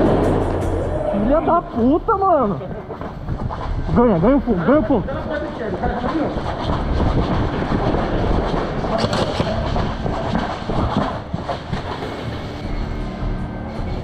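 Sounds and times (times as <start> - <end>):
running footsteps on paving: 1.5 - 14.0
rifle and gear clattering: 2.8 - 12.9.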